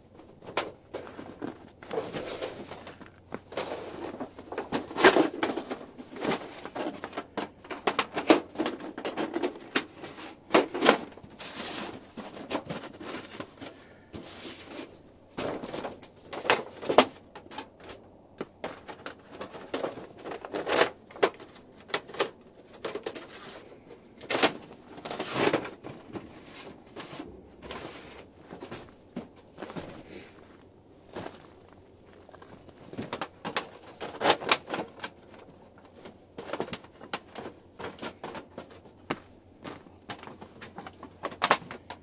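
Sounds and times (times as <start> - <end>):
tarp crinkling: 0.2 - 42.0.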